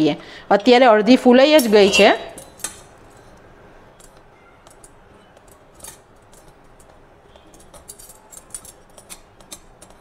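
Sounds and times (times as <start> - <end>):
metal tongs clicking: 1.6 - 3.4, 4.0 - 10.0.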